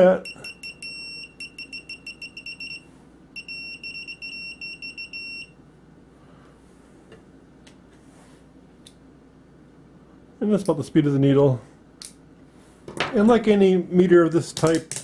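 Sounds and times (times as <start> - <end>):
multimeter high-pitched beeps: 0.1 - 5.6.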